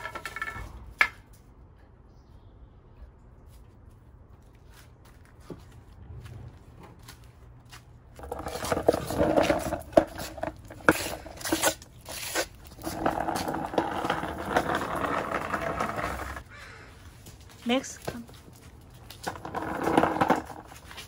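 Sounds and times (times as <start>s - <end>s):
skateboard scraping on paving: 8.2s - 16.5s, 19.0s - 21.0s.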